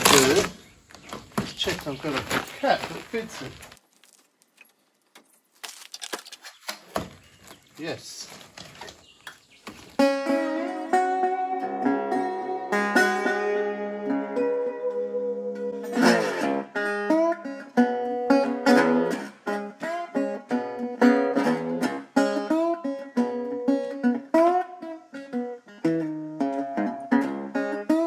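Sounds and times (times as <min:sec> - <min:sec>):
acoustic guitar picking a tune: 0:09.9 - 0:28.0.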